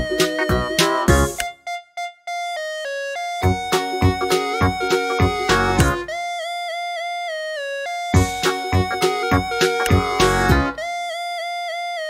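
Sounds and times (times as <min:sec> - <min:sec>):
melody over drum beat: 0:00.0 - 0:01.5, 0:03.4 - 0:06.2, 0:08.2 - 0:10.8.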